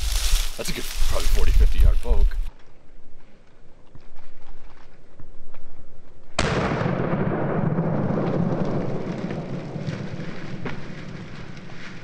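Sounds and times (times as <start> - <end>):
shotgun blast: 6.4 - 8.3
rumbling echo: 6.4 - 11.5.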